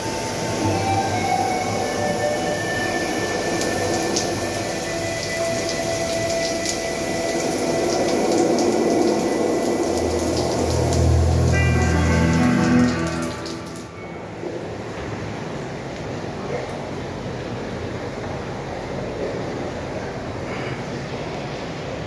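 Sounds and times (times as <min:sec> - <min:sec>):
shower water hissing: 0:00.0 - 0:14.7.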